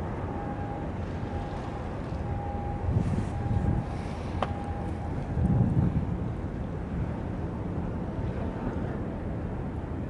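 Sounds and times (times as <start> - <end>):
faint steady tone: 0.0 - 5.7
open water ambience: 0.0 - 10.0
wind buffeting microphone: 0.0 - 10.0.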